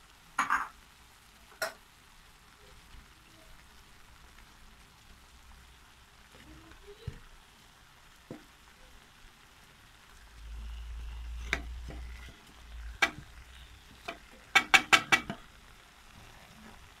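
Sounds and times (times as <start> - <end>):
faint sizzle: 0.0 - 17.0
spoon stirring in metal pot: 11.2 - 15.5
spoon knocking against pot: 14.0 - 15.4.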